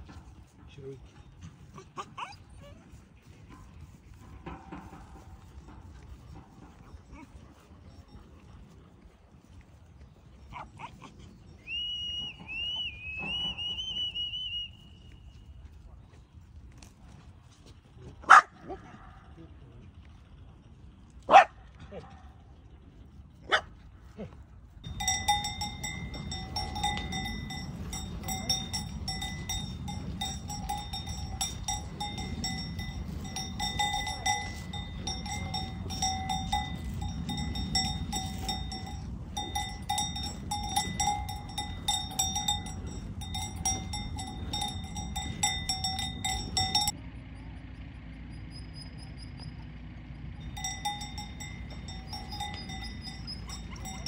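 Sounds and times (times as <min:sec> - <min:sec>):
cow bell clanking: 0:03.5 - 0:08.8, 0:24.8 - 0:47.0, 0:50.3 - 0:54.0.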